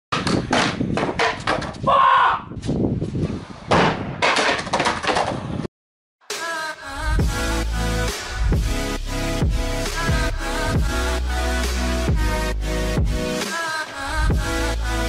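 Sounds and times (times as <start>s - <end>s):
electronic music: 7.1s - 15.0s.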